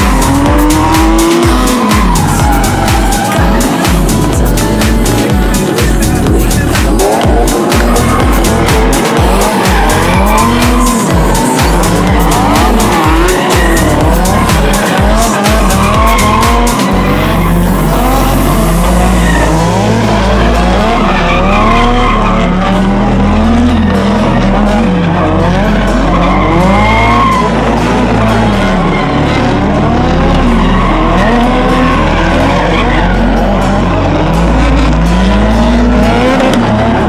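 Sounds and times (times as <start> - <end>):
car engines revving: 0.0 - 37.0
deep sustained bass: 0.0 - 37.0
electronic music with steady beat: 0.0 - 37.0
tyre squeal: 6.5 - 24.2, 25.0 - 36.7.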